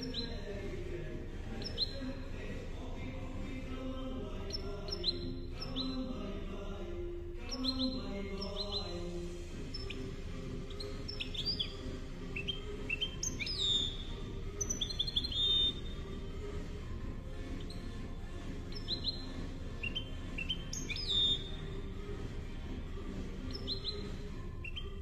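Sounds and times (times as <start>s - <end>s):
bird singing chirps and trills: 0.0s - 25.0s.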